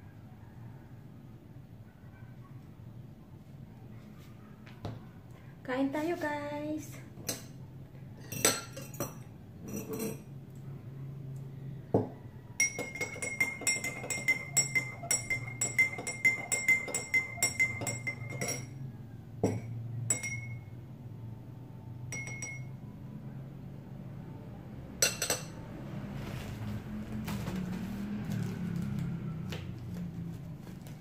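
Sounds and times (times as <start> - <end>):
teaspoon clinking in a glass: 8.2 - 10.3, 12.6 - 18.8, 19.4 - 20.7, 22.1 - 22.7, 25.0 - 25.6.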